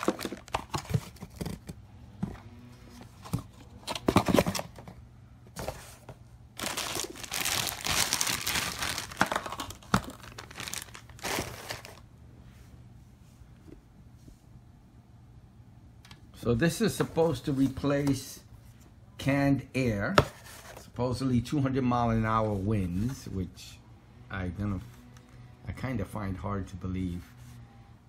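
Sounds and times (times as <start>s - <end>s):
plastic bag crinkling: 0.0s - 1.5s, 6.6s - 12.0s.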